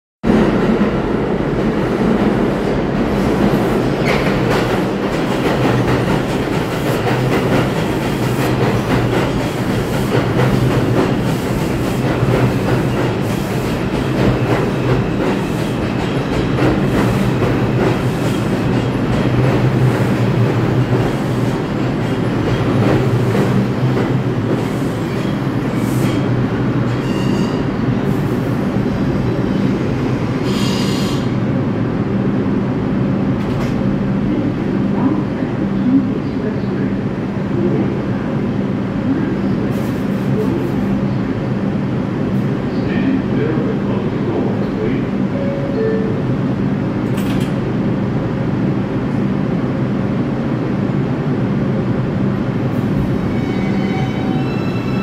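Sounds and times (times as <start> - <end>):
train wheels rumbling on rails: 0.2 - 45.6, 46.4 - 55.0
high wheel squeals: 53.2 - 55.0.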